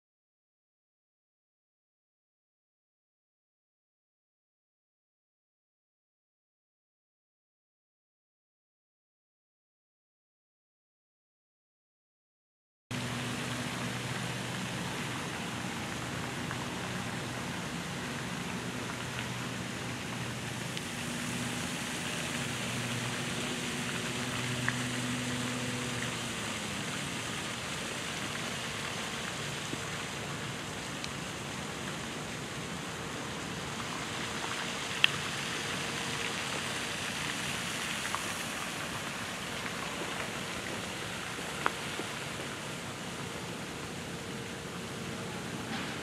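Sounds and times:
rushing outdoor background noise: 12.9 - 46.0.

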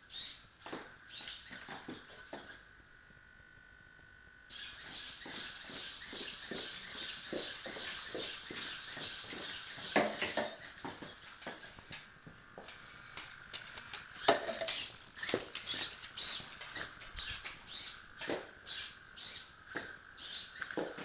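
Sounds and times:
servos whirring: 0.0 - 2.8, 4.4 - 21.0
robot feet tapping on tile: 5.2 - 18.8.

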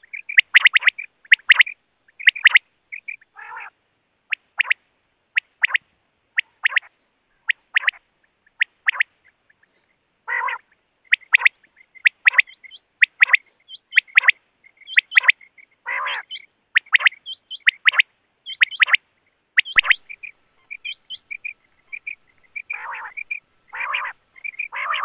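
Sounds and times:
quail calling: 0.0 - 5.8, 6.4 - 19.0, 19.6 - 25.0
higher chirping notes: 19.6 - 25.0.

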